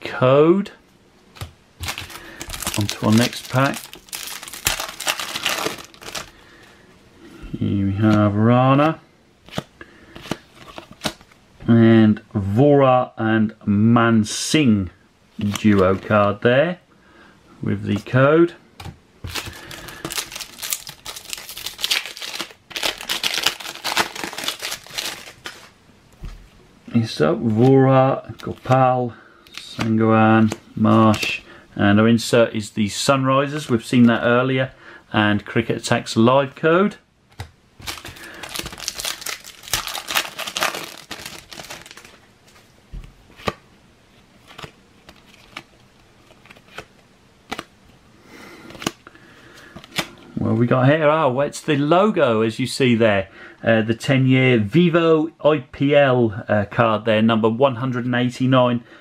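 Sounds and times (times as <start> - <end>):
wrapper crinkling and tearing: 1.8 - 6.4, 19.3 - 25.7, 37.8 - 42.2
cards clicking and snapping: 46.3 - 47.7.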